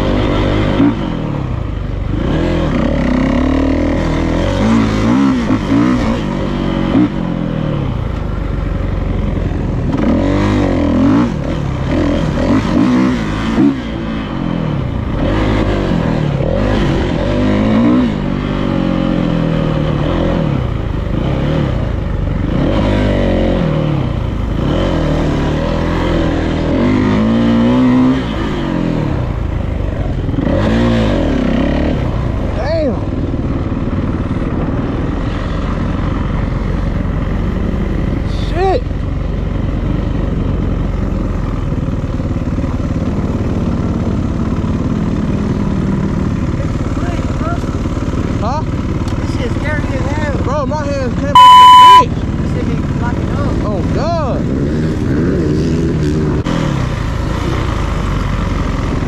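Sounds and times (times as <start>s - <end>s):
dirt bike engine revving: 0.0s - 29.3s, 30.3s - 33.2s, 51.2s - 52.0s.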